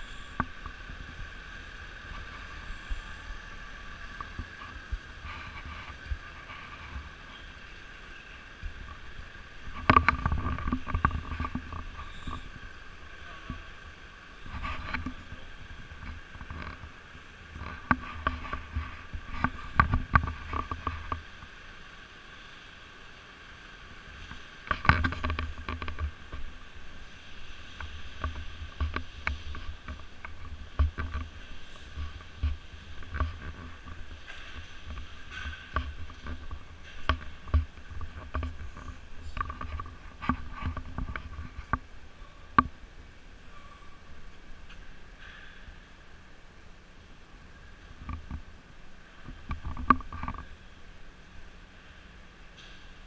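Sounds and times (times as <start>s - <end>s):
faint hum: 0.0s - 53.0s
camera knocking and rustling: 9.6s - 12.6s, 17.6s - 21.2s, 24.2s - 26.6s, 27.7s - 41.9s, 49.2s - 50.5s.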